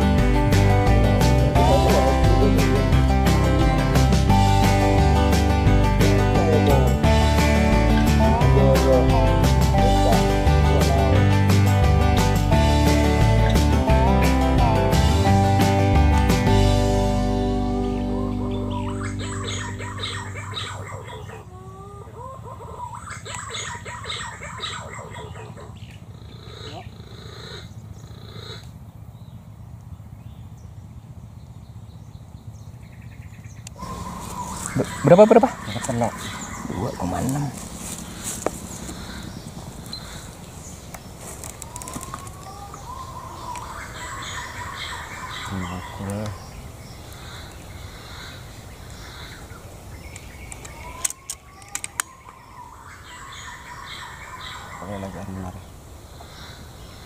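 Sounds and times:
faint bird chirps: 17.8s - 21.4s, 31.6s - 57.0s
insects buzzing: 33.6s - 57.0s
low rumble: 33.8s - 43.9s
sharp clicks: 40.9s - 42.4s, 50.1s - 52.4s.

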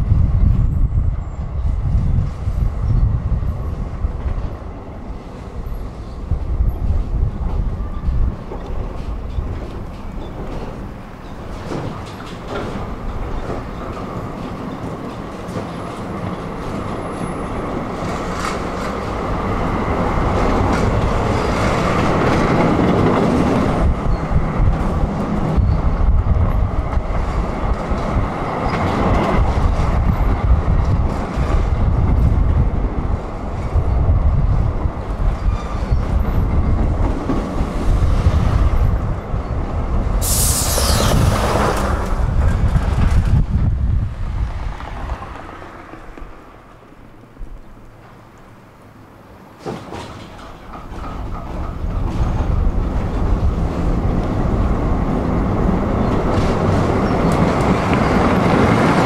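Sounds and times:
tram rumbling on rails: 0.0s - 59.0s
clacks over rail joints: 6.7s - 19.4s, 49.5s - 54.7s
high squeal falling in pitch: 40.2s - 41.9s.

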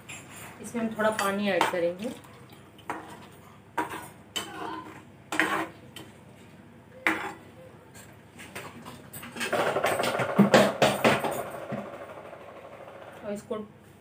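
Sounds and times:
ladle clinking and scraping pan: 5.3s - 6.1s.

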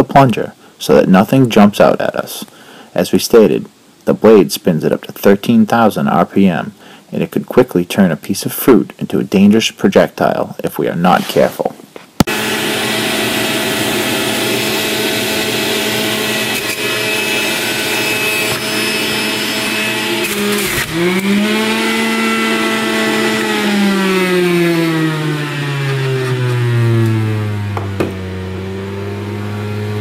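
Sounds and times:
juicer motor whine: 12.2s - 30.0s.

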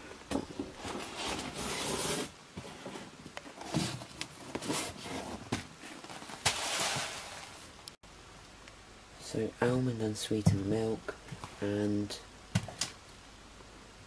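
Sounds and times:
cardboard box rustling and knocking: 0.3s - 7.4s.

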